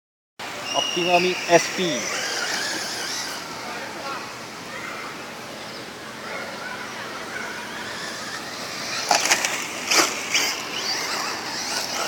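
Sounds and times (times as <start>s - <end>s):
rc car motor whirring: 0.7s - 4.3s, 7.3s - 12.0s.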